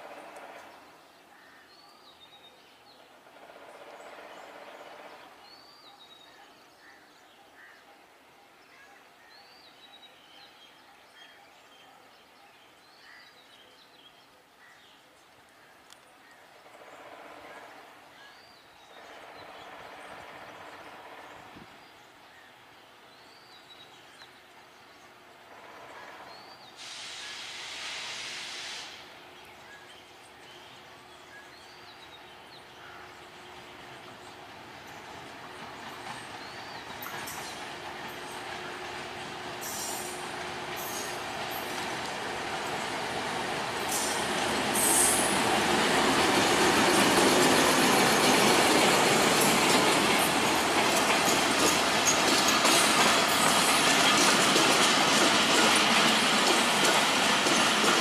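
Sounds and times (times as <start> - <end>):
faint diesel locomotive hum: 0.0 - 9.0, 15.7 - 58.0
outdoor background noise: 0.0 - 58.0
loud steady hiss: 26.7 - 29.6, 37.2 - 58.0
birds chirping: 29.2 - 58.0.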